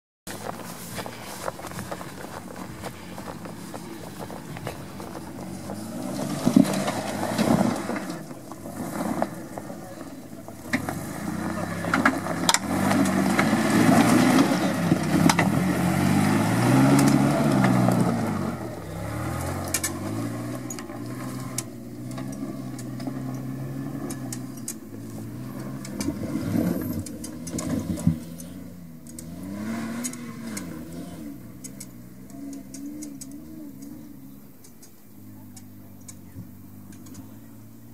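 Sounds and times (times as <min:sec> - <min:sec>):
off-road vehicle engine revving: 0:00.3 - 0:37.9
sharp clicks and knocks: 0:19.5 - 0:24.9, 0:34.6 - 0:37.3.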